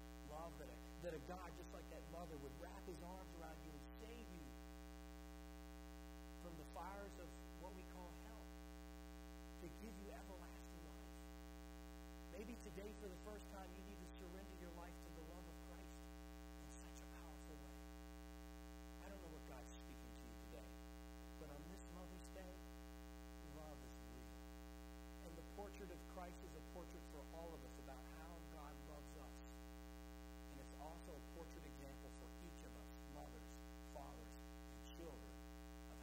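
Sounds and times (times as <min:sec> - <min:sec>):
electrical mains hum: 0:00.0 - 0:36.0
man speaking quietly: 0:00.2 - 0:04.5, 0:06.4 - 0:08.5, 0:09.6 - 0:11.1, 0:12.4 - 0:16.0, 0:16.6 - 0:17.8, 0:19.0 - 0:20.7, 0:21.4 - 0:22.6, 0:23.4 - 0:24.4, 0:25.2 - 0:29.5, 0:30.5 - 0:35.3.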